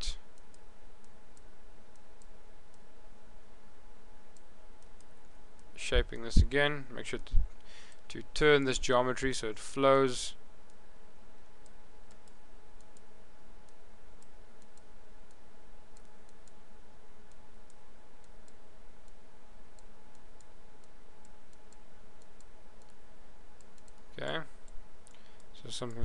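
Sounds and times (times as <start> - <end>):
microphone hiss and hum: 0.0 - 26.0
computer mouse clicks: 0.3 - 2.8, 4.3 - 5.8, 11.6 - 16.6, 17.3 - 23.0, 23.6 - 26.0.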